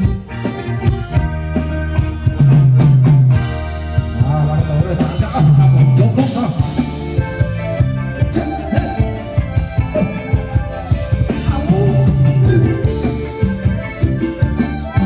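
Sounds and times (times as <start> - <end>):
bass: 0.0 - 15.0
drum kit beat: 0.0 - 15.0
keyboard: 0.0 - 15.0
person singing: 8.2 - 13.4.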